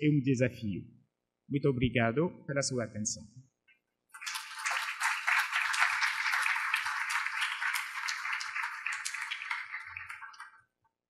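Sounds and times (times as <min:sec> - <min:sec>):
audience applauding: 0:04.2 - 0:10.6.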